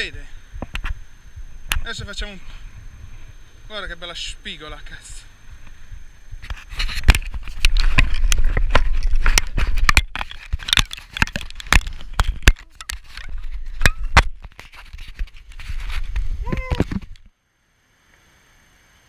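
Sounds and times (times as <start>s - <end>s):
low wind rumble: 0.0s - 10.7s
clothing rubbing on camera: 6.3s - 11.2s, 14.5s - 17.2s
camera handling clicks and knocks: 7.0s - 14.6s.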